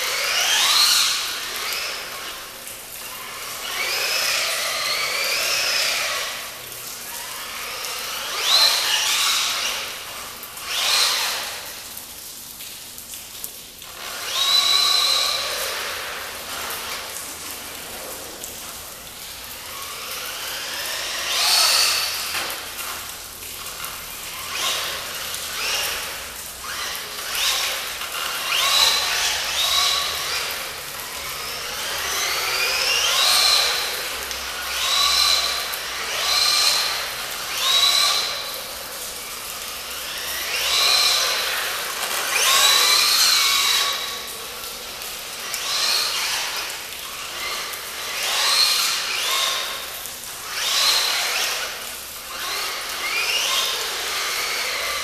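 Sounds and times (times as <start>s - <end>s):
toy truck electric motor whining: 0.0s - 11.7s, 13.8s - 55.0s.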